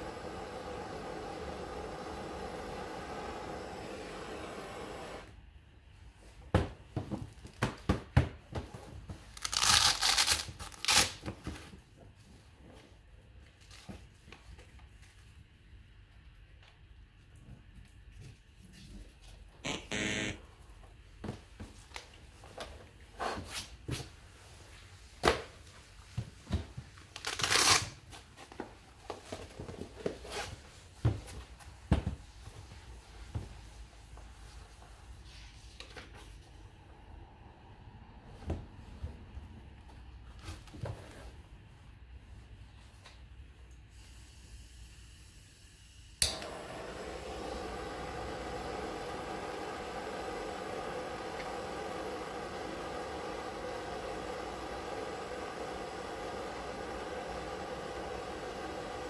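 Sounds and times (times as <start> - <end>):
blowtorch hissing: 0.0 - 5.3, 46.3 - 59.0
foil wallet opening with rasping rustle: 9.4 - 11.2.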